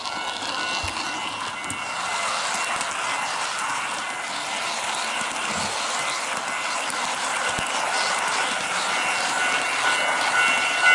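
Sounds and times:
model train motor noise: 0.0s - 10.9s
model train wheels rolling on rails: 0.0s - 10.9s.

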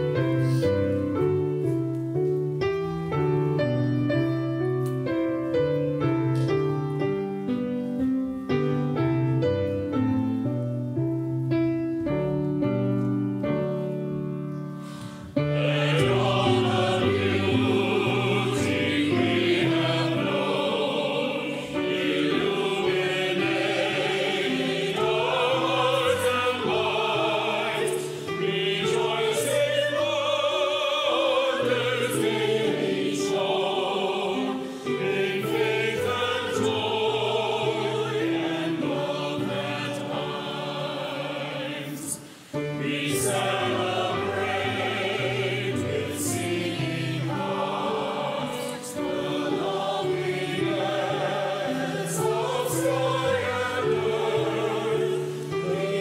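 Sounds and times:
congregation and choir singing hymn: 0.0s - 11.0s, 12.1s - 56.0s
grand piano accompaniment: 0.0s - 56.0s.

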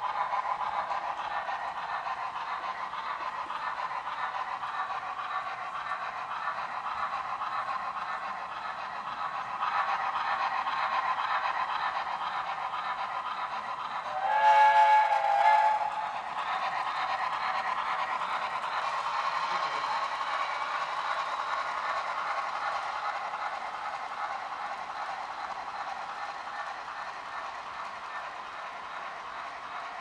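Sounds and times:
model steam locomotive running: 0.0s - 30.0s
chime steam whistle: 14.1s - 16.2s.

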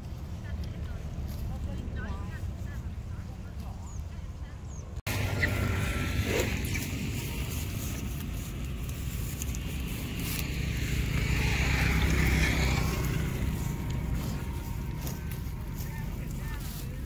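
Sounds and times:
road traffic rumble: 0.0s - 17.0s
motorbike passing: 5.1s - 17.0s.

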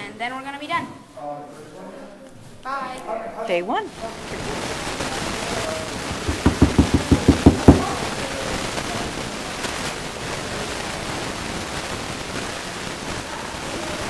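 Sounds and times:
steady hiss: 3.9s - 14.0s
low thumps: 6.1s - 8.1s.

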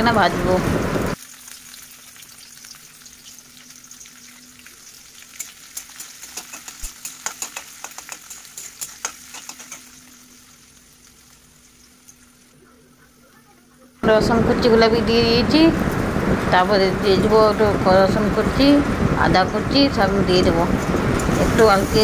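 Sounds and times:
onions sizzling in hot oil: 0.0s - 14.0s, 14.6s - 22.0s
spatula scraping pan: 5.3s - 10.3s.

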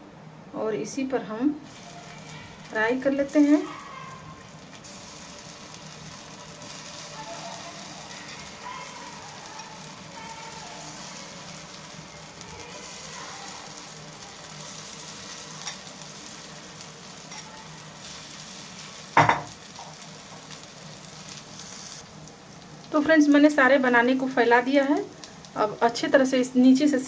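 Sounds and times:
frying in hot oil sizzling: 1.6s - 27.0s.

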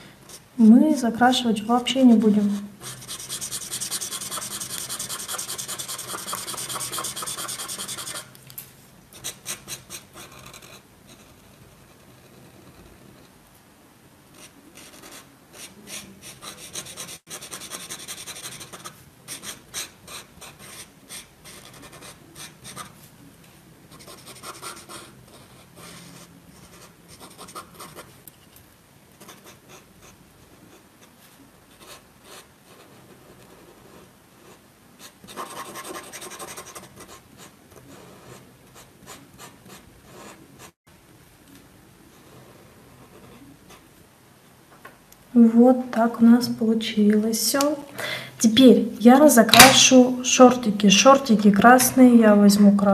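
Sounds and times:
marker scratching on paper: 2.8s - 8.4s, 14.4s - 23.0s, 23.9s - 28.1s, 31.8s - 40.8s.

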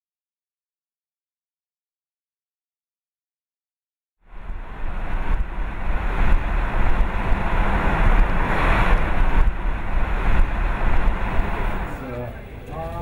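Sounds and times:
tyre and wind rumble inside car: 4.3s - 12.0s.

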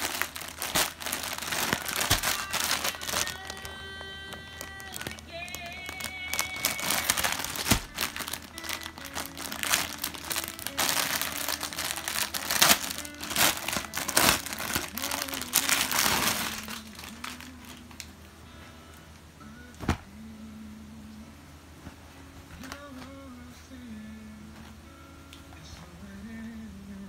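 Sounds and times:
plastic bag crinkling: 0.0s - 18.2s.

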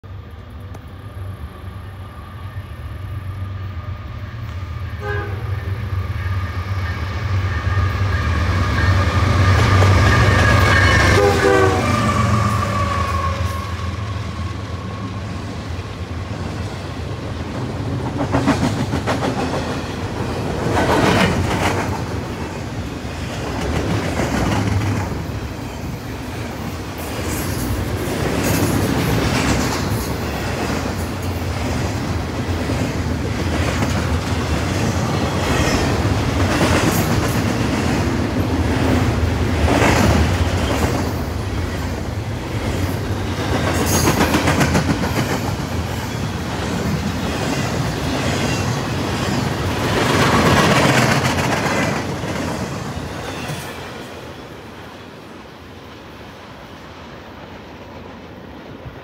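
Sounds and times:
train cars clickety-clack: 4.4s - 54.4s
locomotive horn: 5.0s - 15.2s.

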